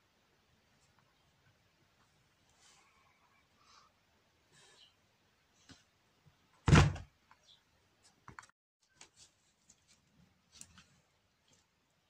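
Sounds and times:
heavy thunk: 6.7 - 7.1.

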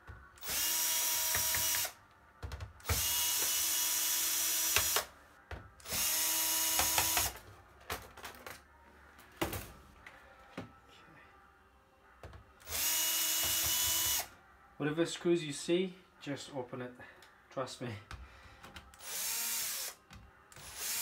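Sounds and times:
cordless drill running: 0.4 - 1.9, 5.9 - 7.4, 12.6 - 14.3, 19.0 - 19.9, 20.6 - 21.0.

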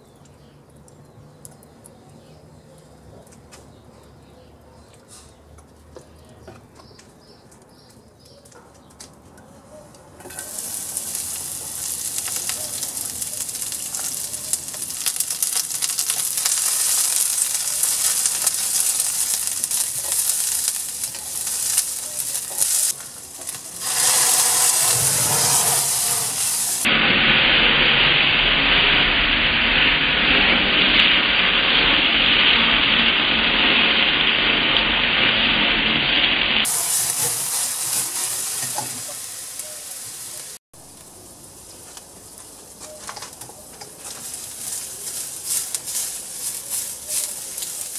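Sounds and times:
onions sizzling in oil: 10.2 - 47.9
flames flaring rush: 10.5 - 39.2.

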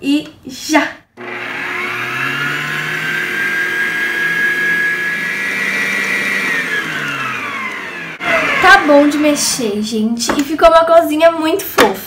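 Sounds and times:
stand mixer motor whine: 1.2 - 9.8.

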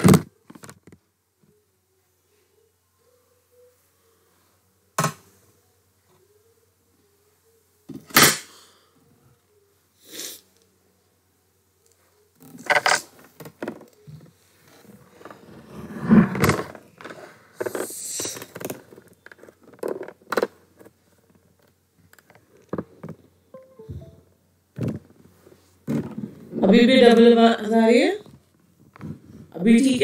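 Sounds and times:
rustling and scraping at a desk: 12.4 - 23.2, 24.8 - 26.6, 28.3 - 29.6.

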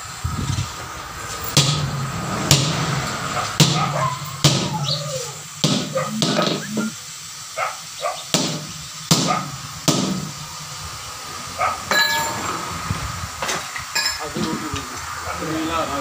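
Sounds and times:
hammer striking steel rim: 1.6 - 2.9, 5.6 - 6.6, 8.4 - 10.3, 11.9 - 12.4.

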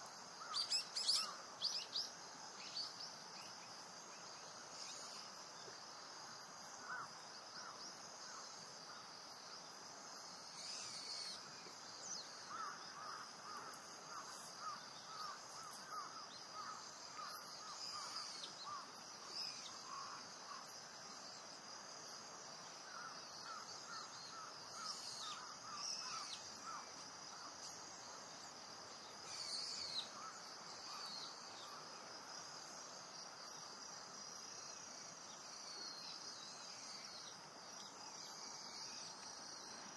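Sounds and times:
high insect chorus: 0.0 - 39.9.

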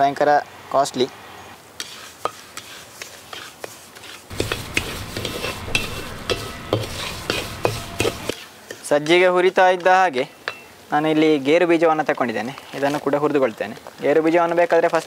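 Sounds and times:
wooden spatula scraping pan: 1.8 - 9.6.

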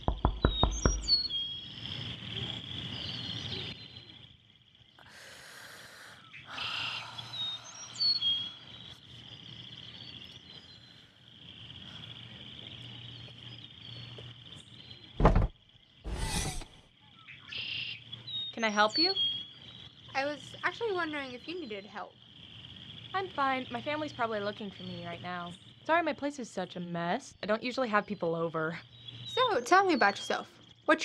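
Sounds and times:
knuckles rapping on window glass: 0.0 - 1.1
birds chirping: 0.0 - 4.2, 6.1 - 11.1, 12.8 - 30.4
car rear hatch opening: 15.2 - 15.5
sharp thump: 15.2 - 15.5.

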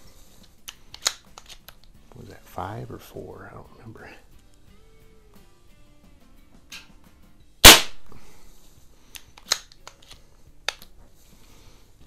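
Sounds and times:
pistol handling clicks: 0.4 - 1.9, 7.6 - 8.2, 9.1 - 11.0
pellet pistol shot: 7.6 - 8.1.

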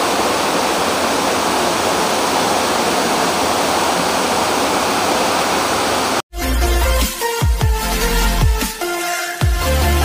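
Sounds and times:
rain falling steadily: 0.0 - 6.2.

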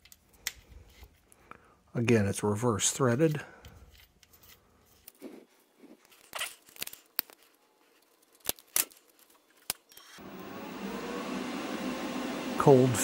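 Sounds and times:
small metal clicks and rustling: 6.0 - 10.2
wire feeder motor whirring: 10.2 - 13.0.

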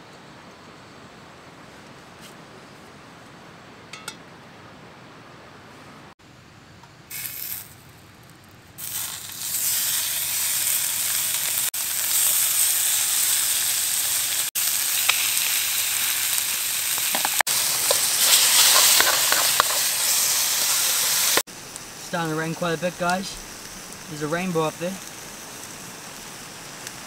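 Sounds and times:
bacon sizzling in frying pan: 7.1 - 7.8, 8.8 - 27.0
fat popping and crackling: 14.6 - 27.0.

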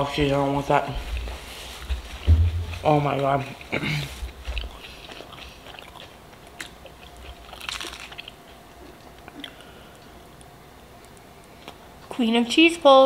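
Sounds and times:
person chewing crunchy food: 0.9 - 10.5.

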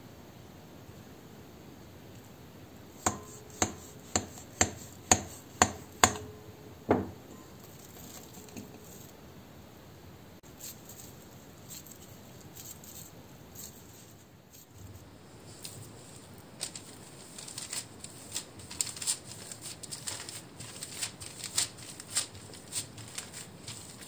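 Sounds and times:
dough being handled: 3.0 - 9.2, 10.4 - 24.0
knife tapping glass bowl: 3.1 - 7.1.

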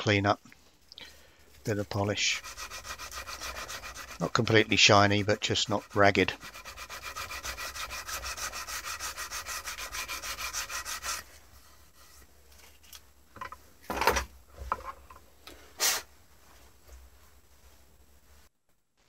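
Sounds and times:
abrasive rubbing metal part: 1.8 - 11.3.

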